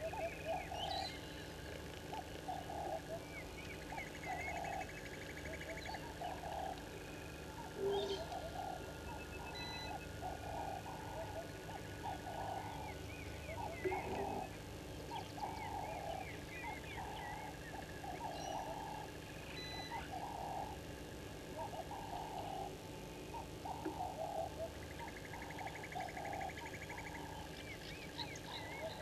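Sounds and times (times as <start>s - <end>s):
rapid bird trill: 0.0s - 20.9s
harsh grating bird calls: 7.6s - 20.8s.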